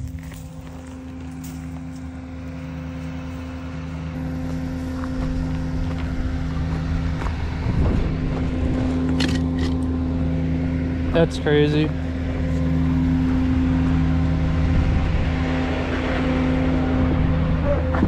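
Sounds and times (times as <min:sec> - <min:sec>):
diesel truck engine idling: 0:00.0 - 0:09.2.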